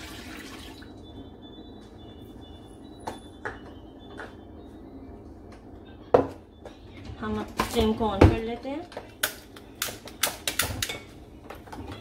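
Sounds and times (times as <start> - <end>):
low kitchen hum: 0.0 - 12.0.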